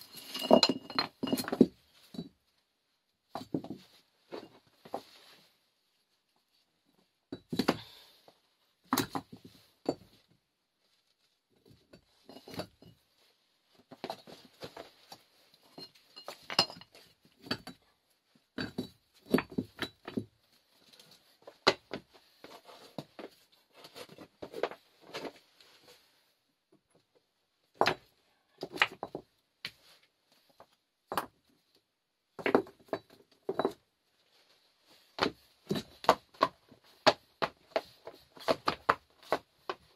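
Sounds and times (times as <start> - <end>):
clinks of hard objects: 0.0 - 2.3, 15.6 - 17.8, 18.6 - 20.2.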